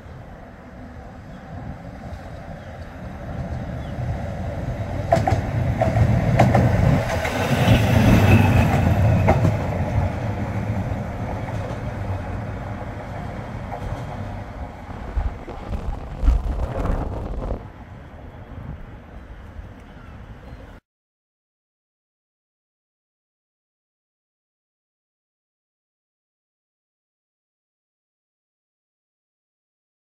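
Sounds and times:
tram wheels rumbling on rails: 0.0 - 20.4.

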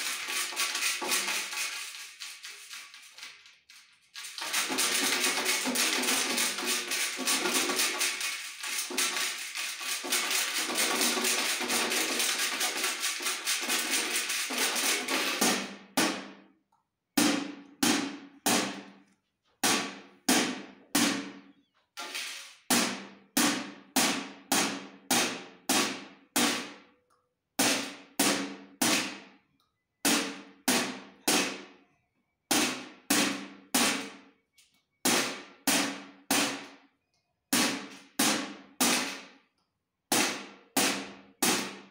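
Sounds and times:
metal tin struck like drum: 4.4 - 16.4.

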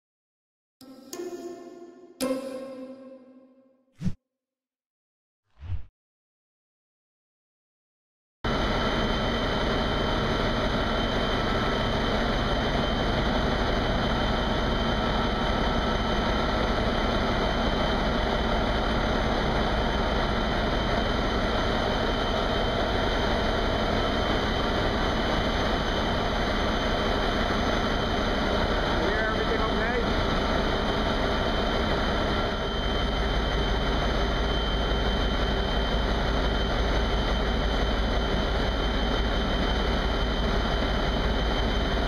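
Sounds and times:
diesel engine drone: 8.5 - 42.0.

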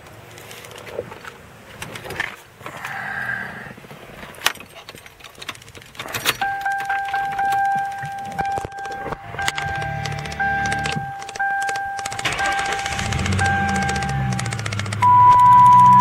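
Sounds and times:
keys jangling and clicking: 4.5 - 15.0
car electronic warning tone: 6.4 - 16.0
low hum: 6.4 - 16.0.

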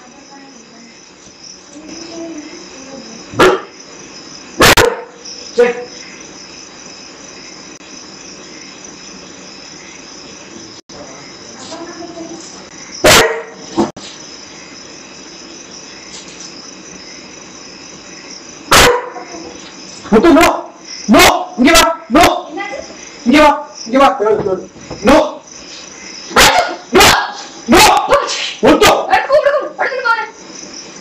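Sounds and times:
crickets chirring: 0.0 - 31.0
dog barking: 3.4 - 3.8, 4.6 - 5.2, 13.0 - 13.6, 18.7 - 19.6, 26.3 - 29.7.

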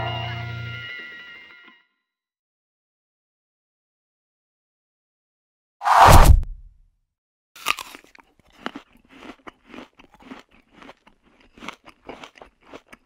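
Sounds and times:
whoosh with deep thud: 5.9 - 6.7
bite into an apple: 7.6 - 13.0
crunchy chewing: 7.6 - 13.0.

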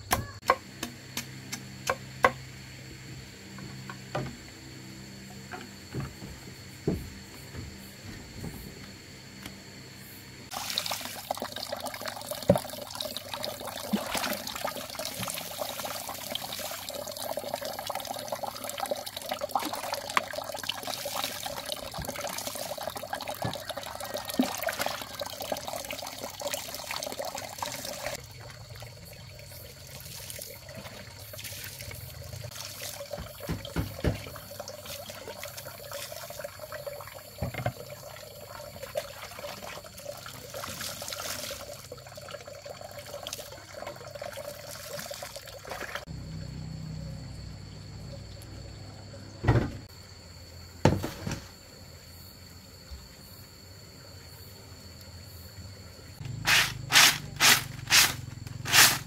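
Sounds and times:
water pouring: 10.5 - 46.1.

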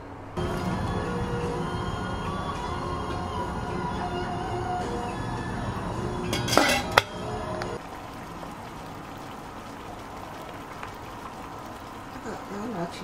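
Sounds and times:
water boiling in a pot: 5.5 - 13.0
cookware clattering: 6.3 - 7.2.

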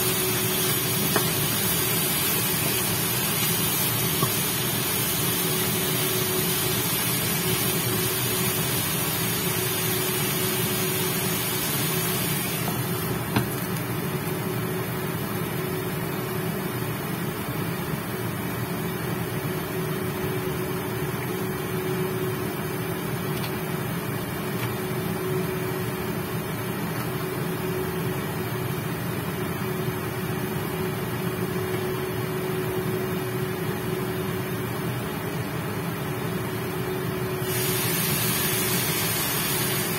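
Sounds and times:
chicken sizzling in frying pan: 0.0 - 13.4, 37.4 - 39.9
cooktop fan hum: 0.0 - 39.9.

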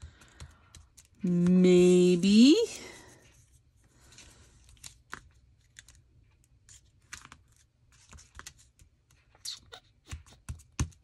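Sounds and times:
paper rustling: 3.2 - 9.3.

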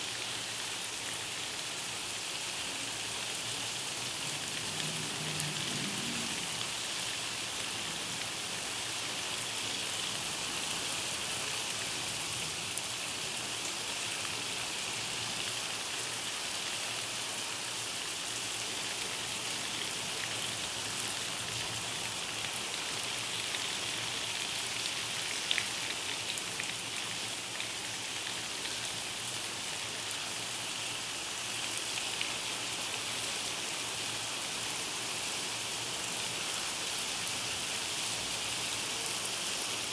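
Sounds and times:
heavy rain falling: 0.1 - 39.9
sharp ticks of raindrops: 4.3 - 10.5, 18.7 - 30.2, 30.8 - 33.7.

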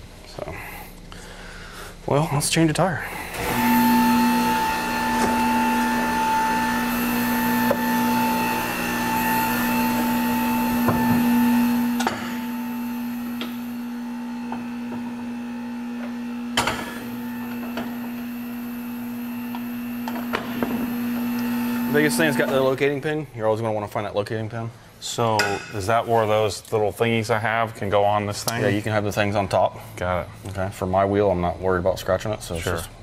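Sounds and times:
electric motor humming: 3.2 - 23.0.

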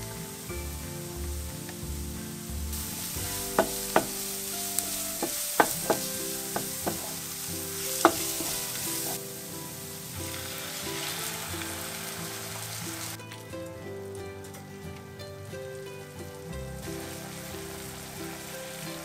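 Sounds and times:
food sizzling in a pan: 0.0 - 13.5, 16.8 - 19.0
utensil clicking against pan: 4.8 - 7.2, 8.0 - 8.6.

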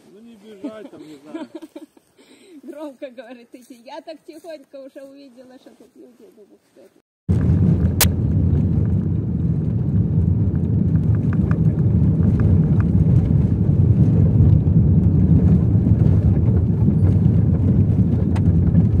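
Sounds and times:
car engine and tyres rumbling: 7.3 - 19.0.

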